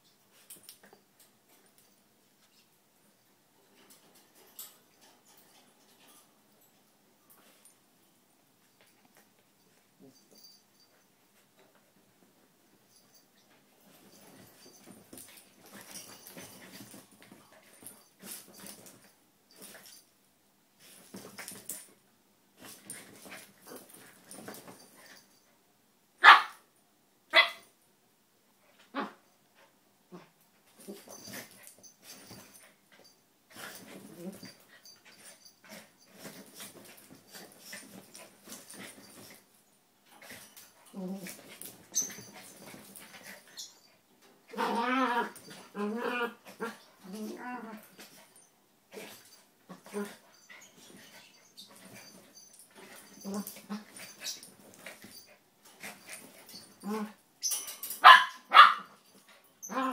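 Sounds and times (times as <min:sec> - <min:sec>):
dogs scuffling: 0:12.2 - 0:20.0, 0:20.8 - 0:22.0, 0:30.7 - 0:59.4
dog barking: 0:26.2 - 0:26.6, 0:58.0 - 0:58.9.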